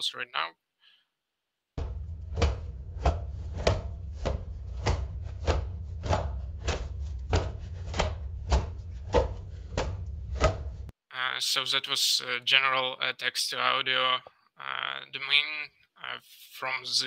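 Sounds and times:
knife chopping on wooden board: 0:01.8 - 0:10.8
steady low hum: 0:01.8 - 0:10.9.

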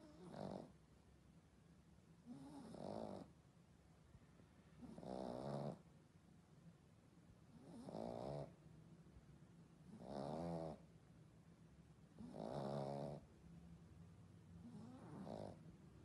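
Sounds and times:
dog snoring: 0:00.0 - 0:00.8, 0:02.2 - 0:03.3, 0:04.8 - 0:05.8, 0:07.5 - 0:08.6, 0:09.8 - 0:10.9, 0:12.1 - 0:13.3, 0:14.6 - 0:15.7.

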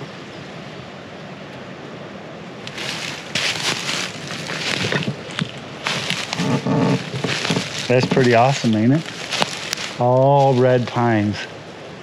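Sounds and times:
wind through pine forest: 0:00.0 - 0:12.0
footsteps on dry pine needles: 0:02.6 - 0:11.0.

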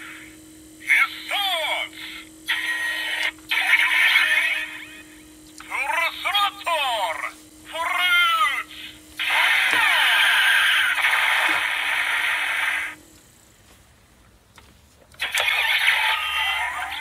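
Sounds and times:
electronic engine revving noise: 0:08.4 - 0:13.0.

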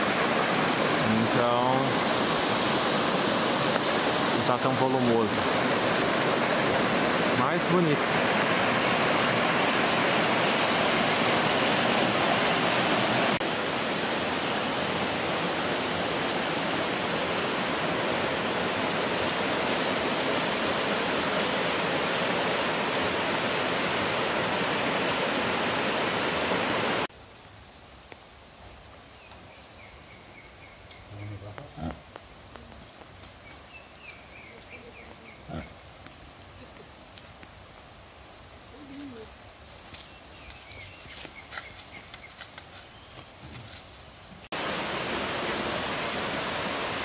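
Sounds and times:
stream rushing over rocks: 0:00.0 - 0:27.1, 0:44.4 - 0:47.0
high insect drone: 0:27.1 - 0:47.0.

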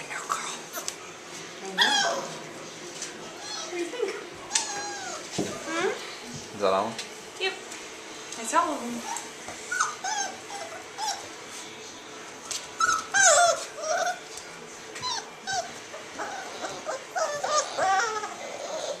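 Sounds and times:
puppies whimpering and yipping: 0:01.8 - 0:02.4, 0:03.3 - 0:06.0, 0:09.0 - 0:11.4, 0:12.7 - 0:14.4, 0:15.0 - 0:19.0.

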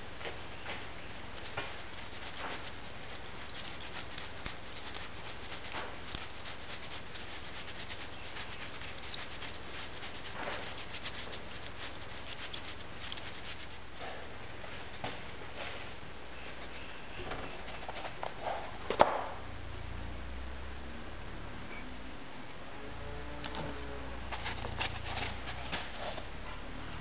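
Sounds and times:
sand sieved patter and hiss: 0:00.0 - 0:16.8, 0:24.2 - 0:26.4.

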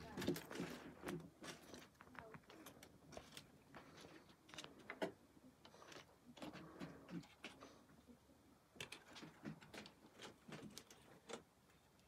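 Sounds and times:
dry sticks clicking and knocking: 0:08.8 - 0:12.0.

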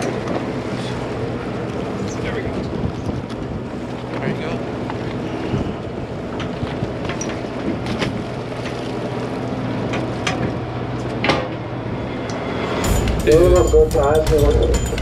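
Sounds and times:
boat engine hum: 0:00.0 - 0:15.0.

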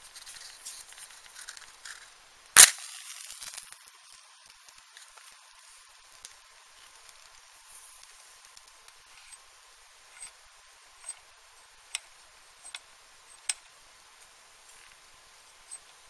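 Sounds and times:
matchbox rustling and clicking: 0:00.1 - 0:09.5
match striking: 0:00.5 - 0:09.0.

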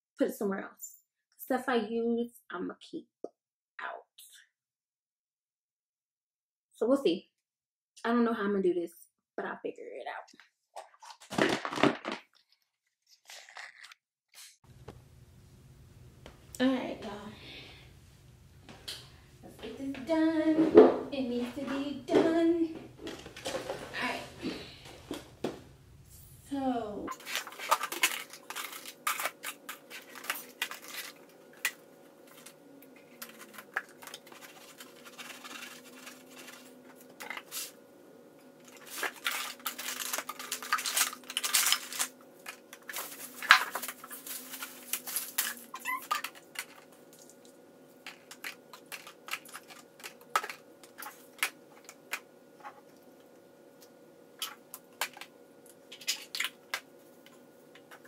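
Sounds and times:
plastic items knocking and clattering: 0:11.0 - 0:12.5, 0:23.0 - 0:24.1, 0:27.1 - 0:37.6, 0:38.6 - 0:47.3, 0:48.0 - 0:52.8
faint steady hum: 0:14.7 - 0:58.0.

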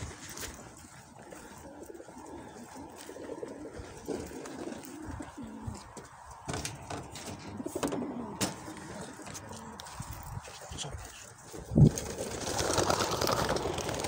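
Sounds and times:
pigeons cooing: 0:00.0 - 0:14.0.

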